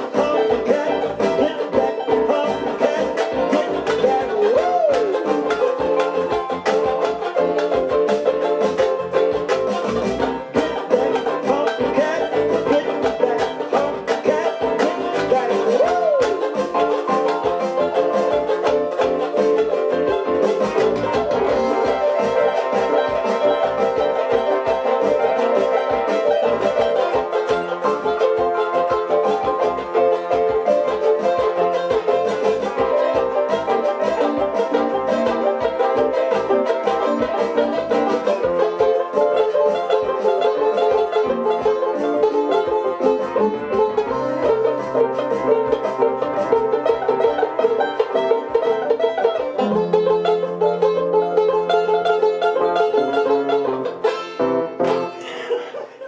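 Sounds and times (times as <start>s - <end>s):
banjo strummed rapidly: 0.0s - 56.0s
electronic keyboard accompaniment: 16.5s - 49.8s
low keyboard bass notes: 16.8s - 27.6s.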